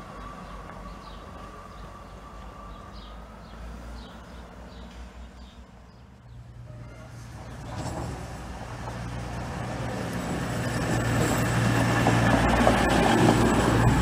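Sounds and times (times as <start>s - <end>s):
train engine rumble and whine: 0.0s - 3.4s, 4.2s - 14.0s
bird chirping: 0.2s - 7.8s.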